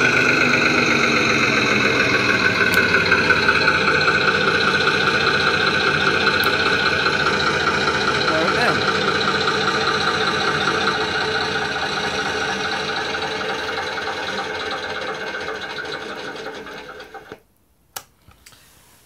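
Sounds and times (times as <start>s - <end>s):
diesel engine sound through loudspeaker: 0.0s - 13.7s.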